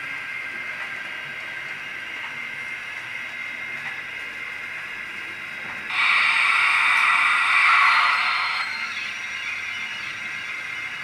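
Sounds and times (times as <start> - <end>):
model steam locomotive hiss: 5.9 - 9.3.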